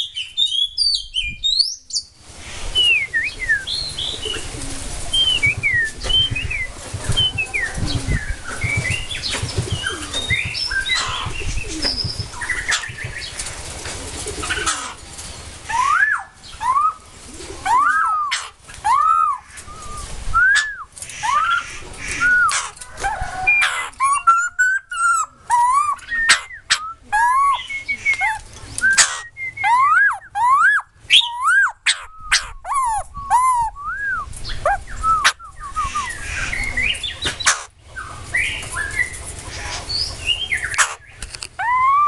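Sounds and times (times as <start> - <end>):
bird singing whistled notes: 0.0 - 2.1, 2.8 - 4.4, 5.2 - 13.0, 24.0 - 39.2
bird chattering: 5.2 - 13.4, 14.3 - 15.0, 18.0 - 19.7, 20.6 - 22.8, 23.5 - 33.8, 34.5 - 42.0.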